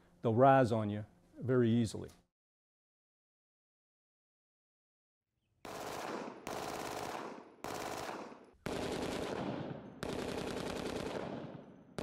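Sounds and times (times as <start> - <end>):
pistol automatic fire bursts: 5.6 - 12.0.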